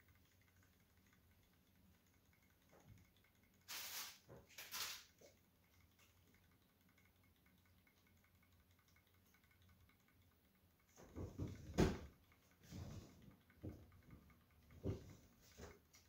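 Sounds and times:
soft knocks and bumps: 11.0s - 13.8s.

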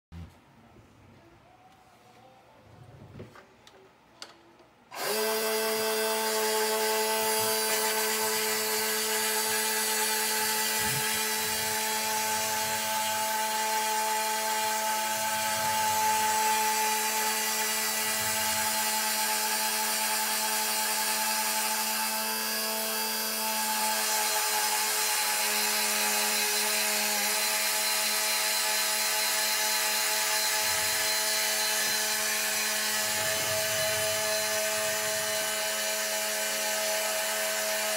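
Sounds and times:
electric motor whine: 4.9s - 37.9s.

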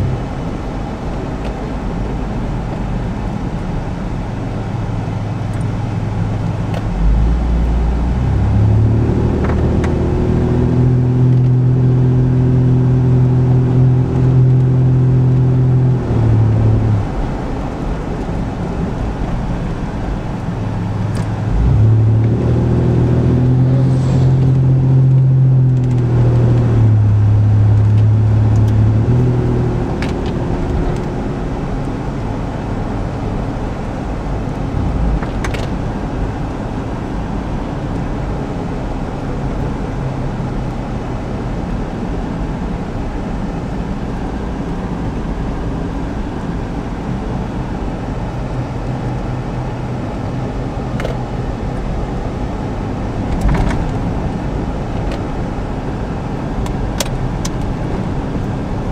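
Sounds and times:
engine and road noise inside vehicle: 0.0s - 58.9s
heavy truck passing: 21.8s - 25.9s.

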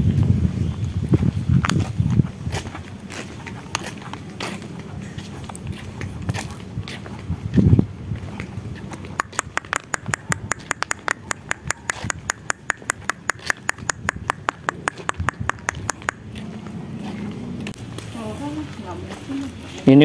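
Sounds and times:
rapid sharp clicks: 9.2s - 16.2s.

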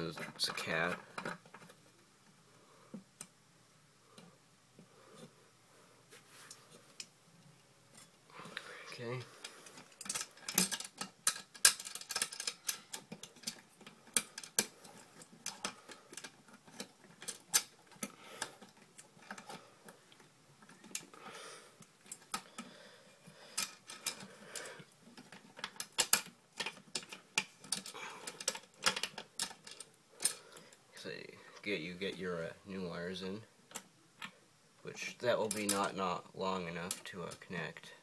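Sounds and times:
hands clicking metal fittings: 9.4s - 21.2s, 23.6s - 30.7s, 35.4s - 35.9s.

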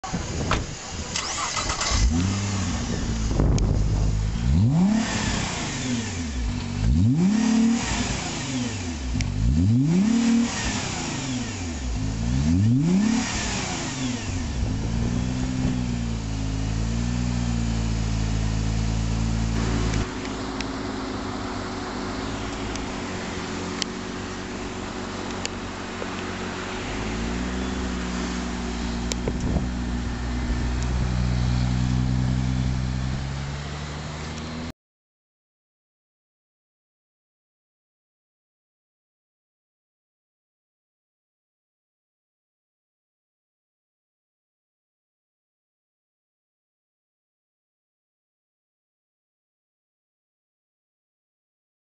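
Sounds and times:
car engine revving and idling: 0.0s - 34.7s.

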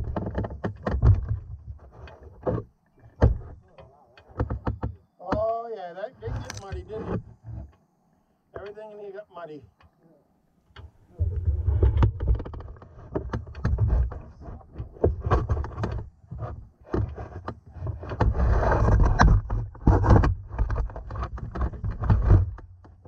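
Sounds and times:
clothing rubbing on microphone: 5.9s - 7.8s, 11.1s - 22.6s.

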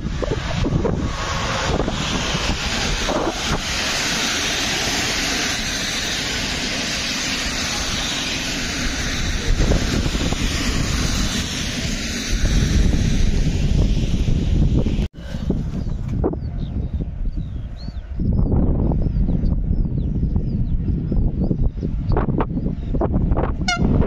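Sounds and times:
train passing at speed: 0.0s - 24.0s
wind buffeting microphone: 0.0s - 24.0s.

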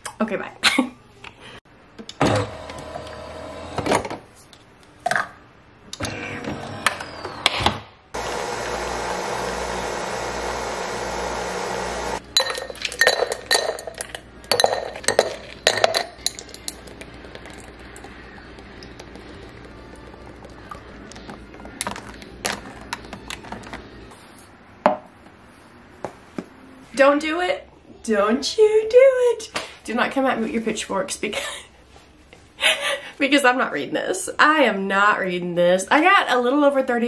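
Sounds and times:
coffee maker humming and hissing: 8.2s - 12.2s, 17.3s - 20.8s.

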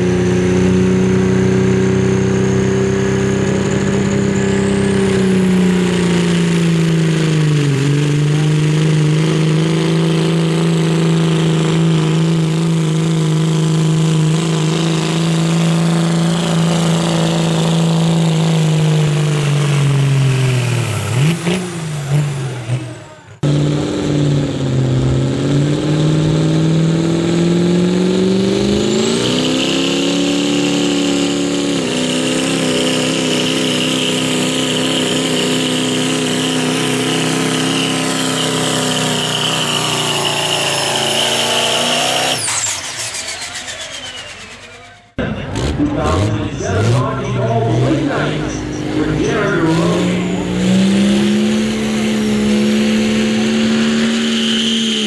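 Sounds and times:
diesel engine at full throttle: 0.0s - 55.0s
steady high whistle: 42.3s - 45.1s.

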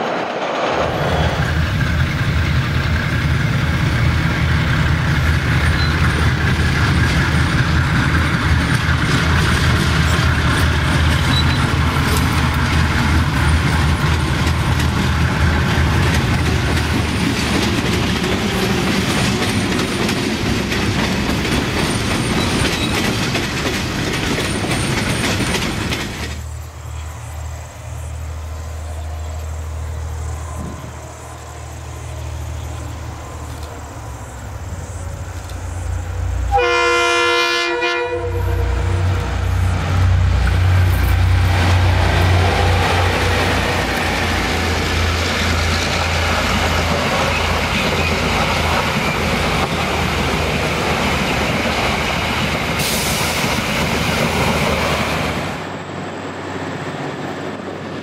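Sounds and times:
train wheels clattering: 0.0s - 28.1s, 38.0s - 55.5s
diesel locomotive rumble: 0.0s - 58.0s
train horn: 36.4s - 39.6s.

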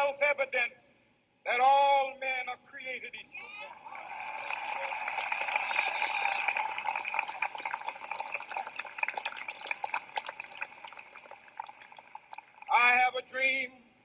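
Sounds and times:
crowd applauding and cheering: 3.5s - 12.8s.

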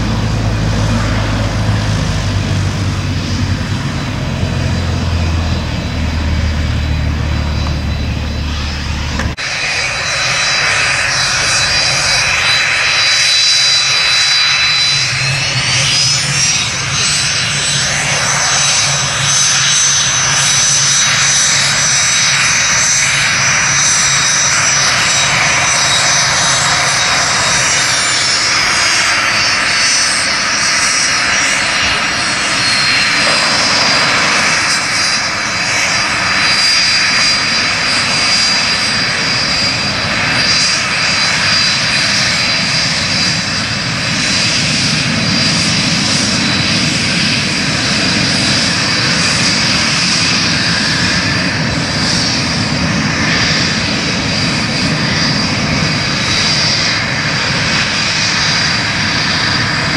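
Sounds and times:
jet engines whining: 0.0s - 59.9s.

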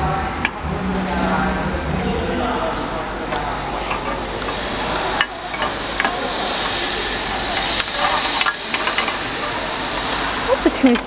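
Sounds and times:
bending machine hissing: 3.0s - 11.0s.

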